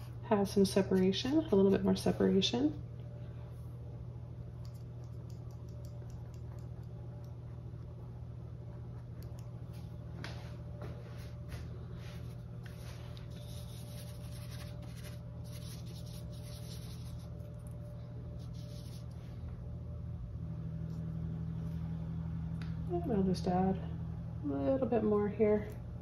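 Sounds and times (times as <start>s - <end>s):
low hum: 0.0s - 26.0s
paintbrush bristles scratching: 12.0s - 17.8s, 18.4s - 19.2s.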